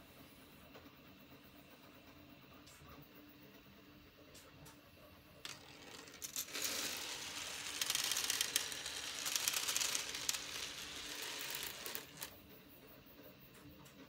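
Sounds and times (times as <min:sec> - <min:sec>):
steel balls clattering on rails: 0:05.4 - 0:12.4.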